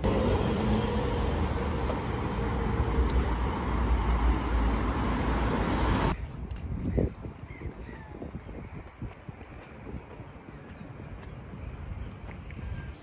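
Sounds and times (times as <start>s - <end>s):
road traffic rumble and hiss: 0.0s - 6.6s.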